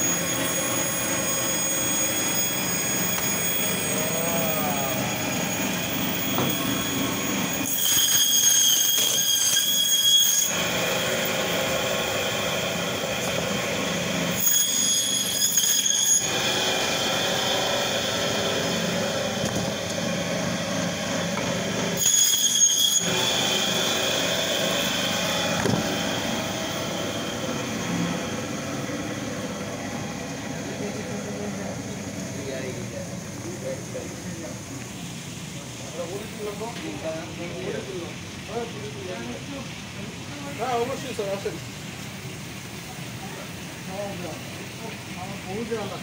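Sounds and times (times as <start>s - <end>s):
band saw blade squealing: 0.0s - 11.6s, 14.3s - 17.9s, 22.0s - 28.1s.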